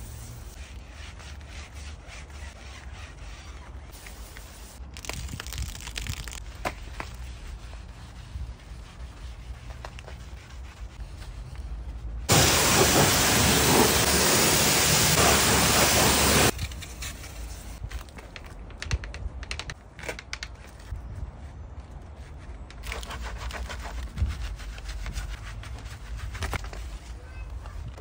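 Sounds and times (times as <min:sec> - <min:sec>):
brush scrubbing a wheel: 0:00.0 - 0:04.8, 0:05.5 - 0:17.8, 0:22.2 - 0:27.3
pressure washer spraying water: 0:12.3 - 0:16.5.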